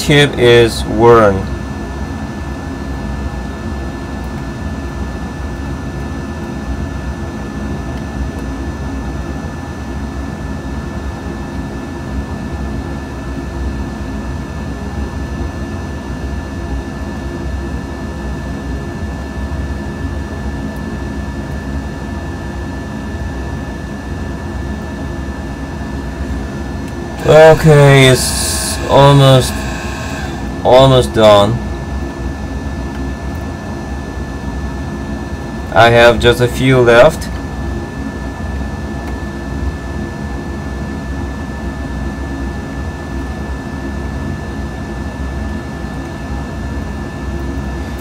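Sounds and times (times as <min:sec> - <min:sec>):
fan drone: 0:00.0 - 0:48.0
faint high whine: 0:23.6 - 0:38.2.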